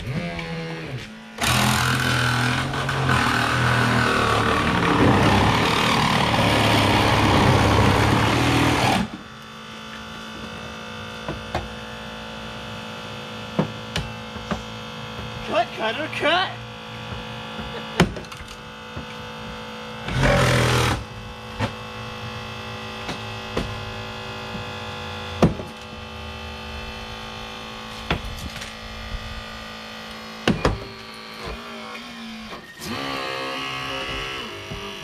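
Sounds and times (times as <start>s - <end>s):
mechanical hum of equipment: 0.0s - 35.0s.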